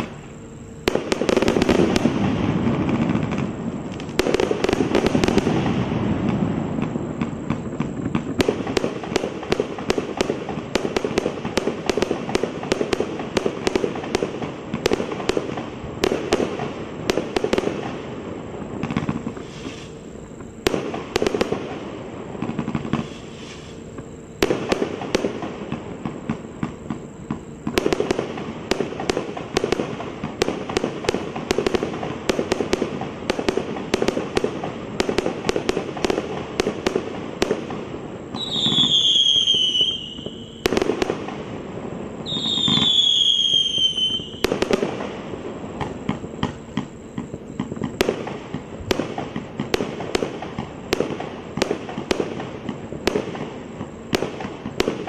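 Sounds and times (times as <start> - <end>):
fireworks bangs: 0.0 - 55.0
fireworks crackling: 0.0 - 55.0
firework whistle sliding down: 19.3 - 20.5, 22.9 - 23.9, 38.3 - 40.8, 42.2 - 44.5.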